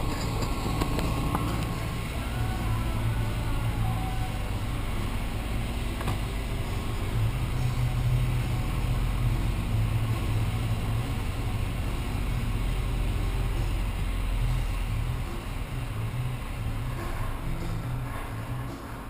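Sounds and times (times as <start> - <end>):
engine idling: 0.0 - 19.0.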